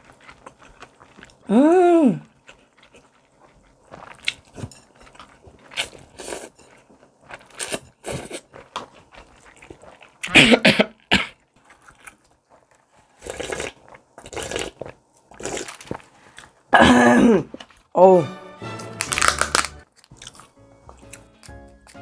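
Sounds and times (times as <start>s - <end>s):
loud coughing fit: 10.3s - 11.4s, 16.7s - 17.6s
noodles slurped: 12.6s - 16.6s.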